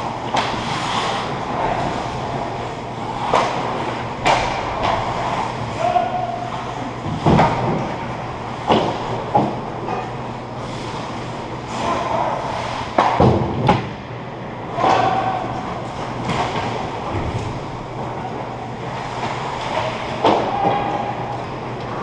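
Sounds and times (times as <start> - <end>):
skates scraping ice: 0.0 - 9.6, 10.6 - 13.2
steady low hum: 0.0 - 22.0
hockey sticks and puck knocking: 0.2 - 1.2, 3.2 - 5.4, 8.6 - 10.1, 12.7 - 14.0, 19.0 - 21.9.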